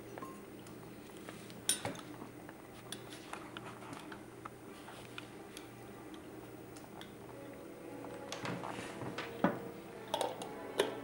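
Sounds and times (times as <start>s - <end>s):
faint steady hum: 0.0s - 11.0s
tableware clinking and knocking: 9.2s - 11.0s.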